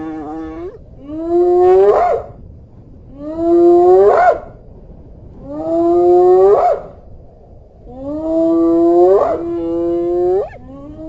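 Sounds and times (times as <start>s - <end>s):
hyena whooping: 8.9s - 11.0s.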